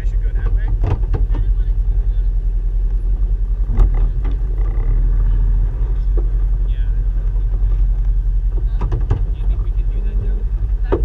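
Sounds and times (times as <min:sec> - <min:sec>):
vehicle engine low rumble: 0:00.0 - 0:11.0
sharp knocks: 0:00.6 - 0:01.5, 0:07.5 - 0:09.6.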